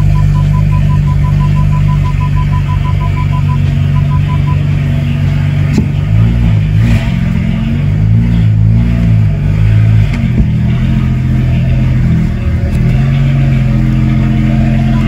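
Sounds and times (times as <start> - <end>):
car warning chime beeping: 0.0 - 4.7, 14.8 - 15.0
car engine revving: 0.0 - 15.0.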